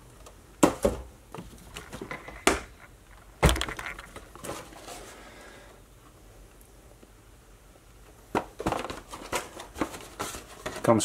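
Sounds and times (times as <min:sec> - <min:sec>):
cardboard boxes knocking on shelf: 0:00.6 - 0:01.1
cardboard rustling and scraping: 0:03.5 - 0:05.3, 0:08.4 - 0:11.0.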